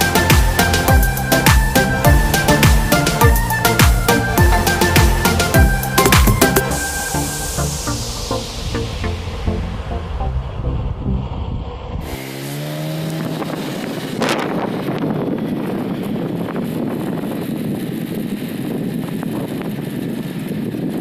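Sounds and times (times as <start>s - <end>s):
music: 0.0s - 11.3s
motorcycle engine riding: 0.0s - 21.0s
wind rush on microphone: 0.0s - 21.0s.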